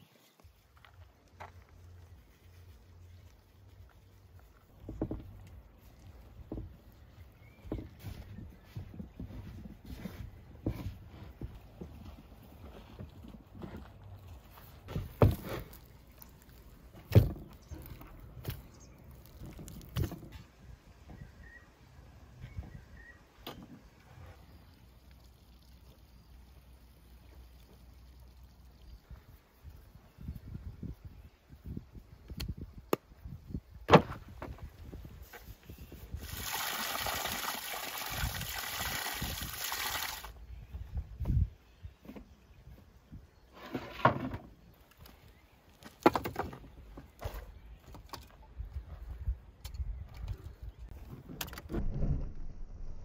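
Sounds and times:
firewood logs knocking together: 4.7 - 5.5, 14.9 - 20.4, 33.9 - 34.7, 45.8 - 48.4
faint low rumble: 51.7 - 53.0.

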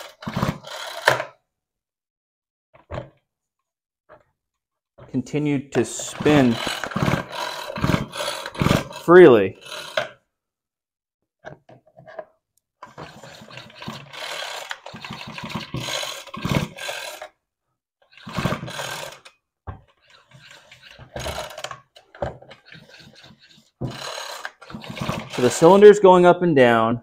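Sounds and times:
trimmer engine clicking and rasping: 6.0 - 10.1, 12.8 - 17.3, 18.2 - 19.3, 20.1 - 21.7, 22.6 - 25.6.

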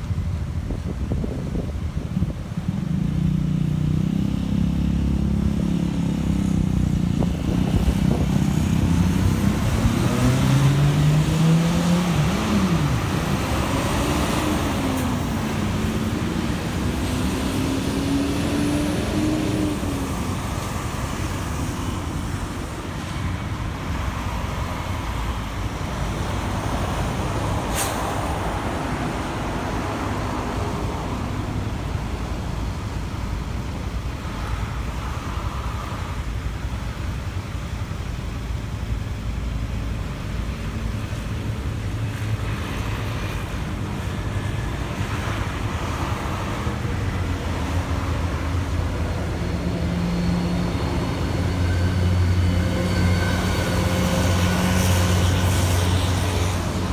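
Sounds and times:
traffic noise: 0.0 - 56.9
vehicle engine accelerating: 2.7 - 22.5.

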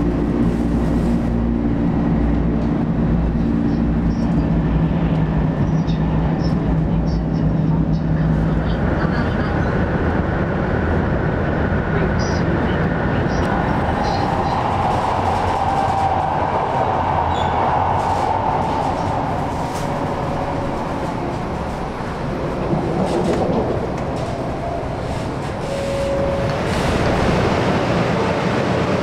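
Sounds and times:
train running rumble: 0.0 - 29.0
faint train squeals: 17.3 - 17.6, 25.6 - 27.0.

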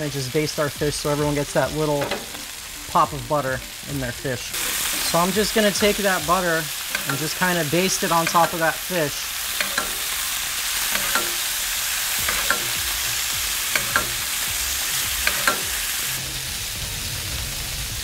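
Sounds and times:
fish fillets sizzling in a skillet: 0.0 - 18.0
utensil clicking against a pan: 2.0 - 2.5, 5.9 - 8.7, 9.5 - 14.5, 15.2 - 15.9.

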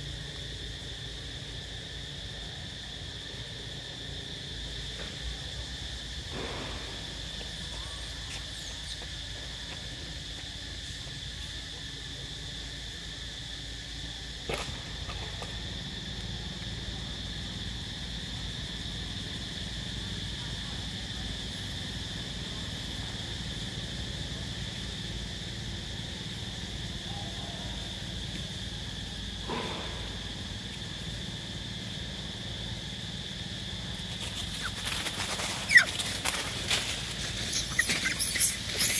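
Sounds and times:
insects droning: 0.0 - 38.9
monkeys clicking and squeaking in branches: 8.3 - 9.2, 33.9 - 38.9.

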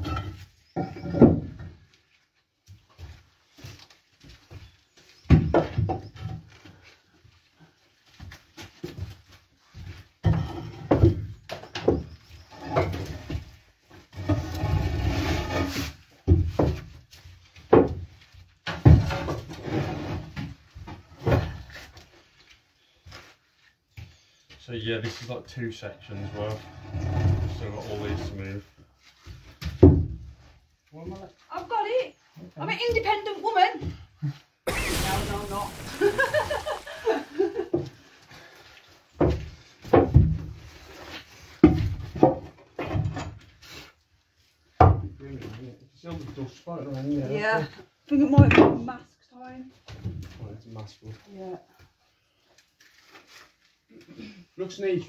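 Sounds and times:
wooden timbers knocking and thudding: 10.2 - 12.1, 16.2 - 17.0, 17.6 - 19.5, 39.2 - 40.6, 41.6 - 43.2
rough scraping of floor panels: 14.0 - 16.0, 19.0 - 20.5, 34.7 - 37.6
rustling: 34.7 - 37.7, 52.3 - 53.9.

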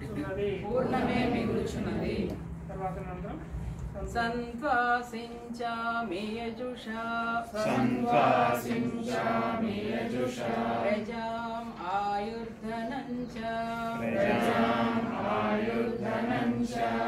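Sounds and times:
group of voices chanting: 14.0 - 17.0.

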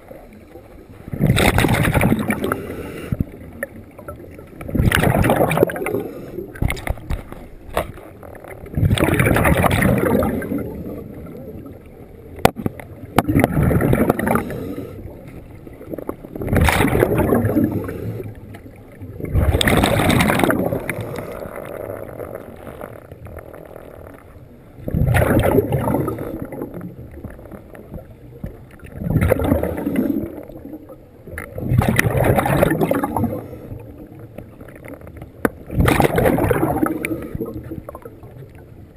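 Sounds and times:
bubbles gurgling: 0.0 - 38.9
diver breathing through regulator: 2.4 - 3.4, 5.8 - 6.6, 14.1 - 15.4, 17.4 - 18.5.

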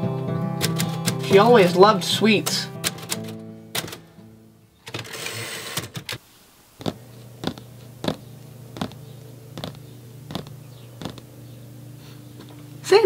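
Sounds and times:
background music: 0.0 - 4.7
typewriter keystrokes: 0.6 - 1.2, 2.8 - 4.0
low steady hum: 6.2 - 13.0.

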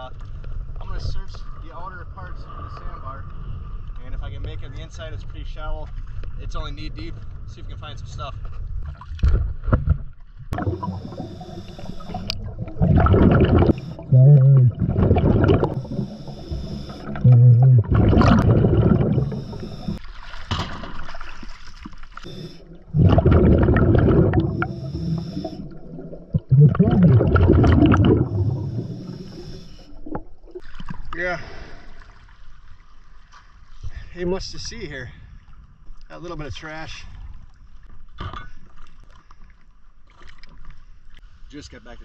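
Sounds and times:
exhaled bubbles rushing: 10.5 - 20.0, 22.2 - 31.0
short low hums: 10.6 - 20.0, 22.2 - 30.2
scuba regulator hissing inhale: 10.7 - 12.4, 15.6 - 17.2, 18.8 - 20.0, 22.2 - 22.8, 24.3 - 25.8, 28.2 - 30.1.

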